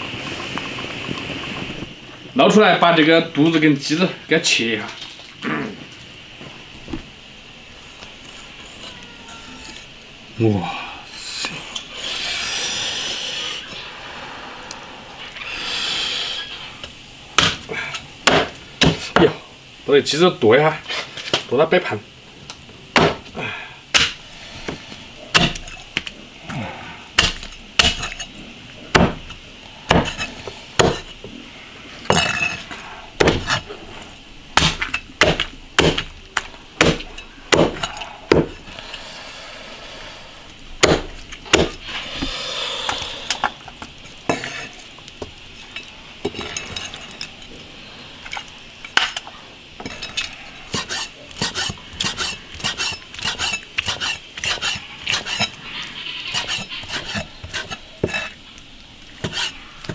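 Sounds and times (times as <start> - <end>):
cleaver chopping on wooden block: 18.3 - 19.3, 23.0 - 23.2, 24.0 - 24.2, 25.4 - 25.7, 27.2 - 28.2, 28.9 - 29.2, 29.9 - 31.0, 33.2 - 33.6, 34.6 - 36.1, 36.8 - 38.6, 40.8 - 41.8.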